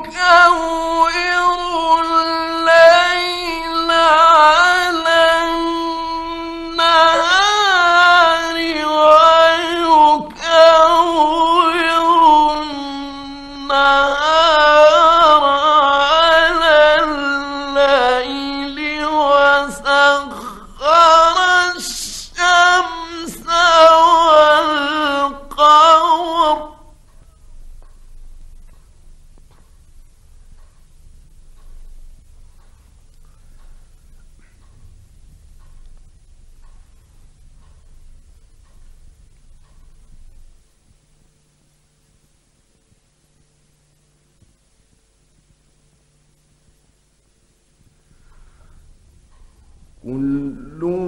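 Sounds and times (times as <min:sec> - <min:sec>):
man chanting melodically: 0:00.0 - 0:27.5, 0:49.3 - 0:51.0.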